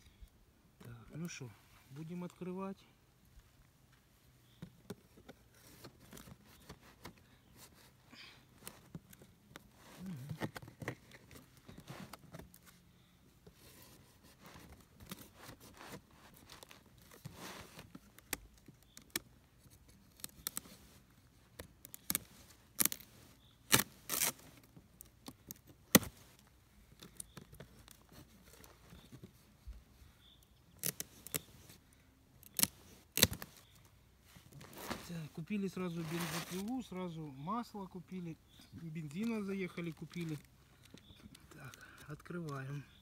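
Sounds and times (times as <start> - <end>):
knife cutting and scraping tape: 21.6 - 24.7, 30.8 - 31.8, 32.4 - 33.6, 36.0 - 36.7.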